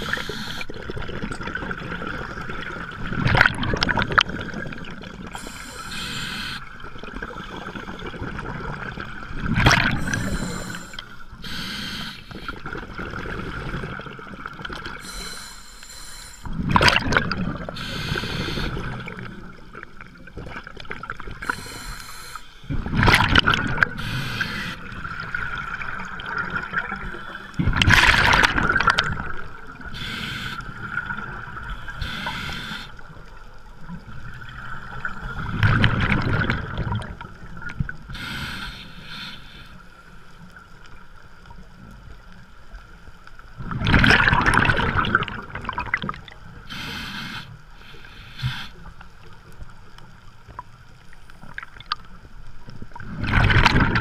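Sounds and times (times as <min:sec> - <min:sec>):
regulator inhale hiss: 0:00.0 - 0:00.7, 0:05.3 - 0:08.0, 0:09.9 - 0:12.6, 0:15.0 - 0:16.6, 0:17.7 - 0:19.2, 0:21.4 - 0:22.7, 0:24.0 - 0:25.0, 0:29.9 - 0:30.8, 0:31.7 - 0:33.1, 0:38.1 - 0:40.1, 0:46.6 - 0:49.0
exhaled bubbles rushing: 0:00.0 - 0:05.4, 0:06.8 - 0:10.9, 0:12.3 - 0:15.0, 0:16.5 - 0:17.8, 0:22.7 - 0:29.9, 0:34.2 - 0:38.0, 0:43.6 - 0:46.4, 0:52.9 - 0:54.0
steady high hum: 0:09.7 - 0:12.6.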